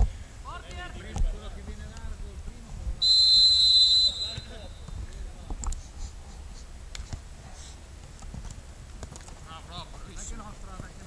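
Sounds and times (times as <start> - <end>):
referee's whistle blast: 3.0 - 4.8.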